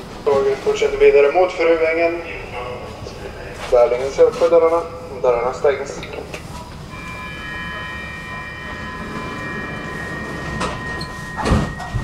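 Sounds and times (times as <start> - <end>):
electrical whine: 2.1 - 12.0
heavy thump: 11.4 - 12.0.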